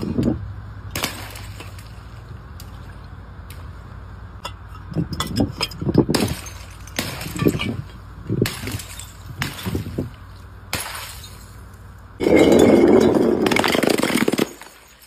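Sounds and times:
glass bottles smashing: 5.1s - 10.1s, 10.8s - 11.5s, 12.2s - 15.0s
tinkling glass shards: 12.2s - 15.0s.

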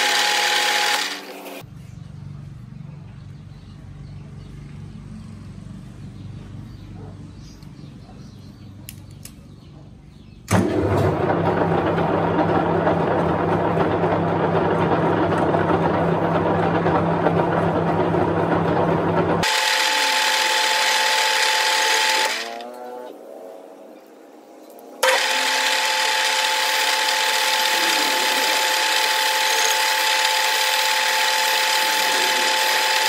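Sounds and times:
metal lathe running: 0.0s - 1.6s, 10.5s - 22.6s, 25.0s - 33.0s.

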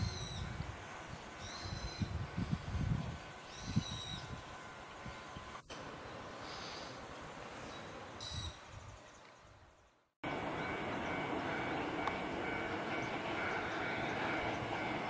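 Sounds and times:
electric train rumbling past: 0.0s - 6.8s, 10.2s - 15.0s
faint outdoor ambience: 0.0s - 15.0s.

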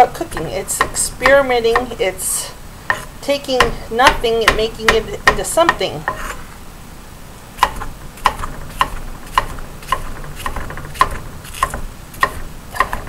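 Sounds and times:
knife chopping on wooden board: 2.9s - 6.4s, 7.6s - 13.0s.

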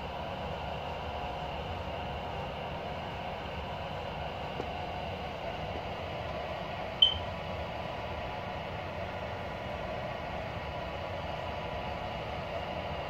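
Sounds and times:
short high beep: 7.0s - 7.2s.

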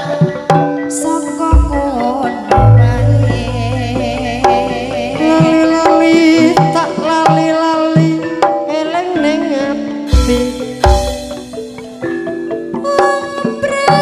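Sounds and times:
wavering pitched melody: 0.6s - 14.0s
hand drum strokes: 1.6s - 8.6s
deep held bass note: 2.6s - 5.9s.

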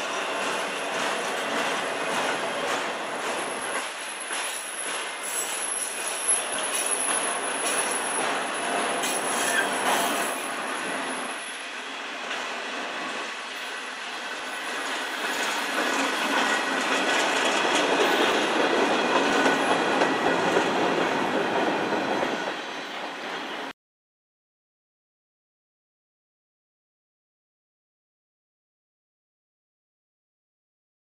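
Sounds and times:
freight train rumble and clatter: 0.0s - 23.7s
faint high wheel squeal: 4.5s - 12.0s.

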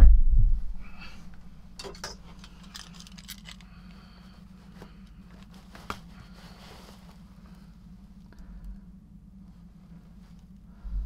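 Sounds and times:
steady low hum: 0.0s - 11.0s
filter bag rustling and crinkling: 4.5s - 8.1s.

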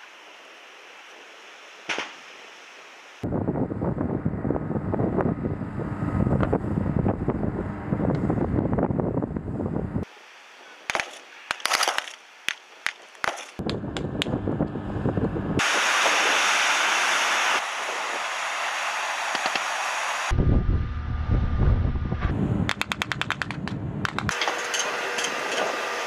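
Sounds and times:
water rushing and spray: 15.6s - 20.3s.

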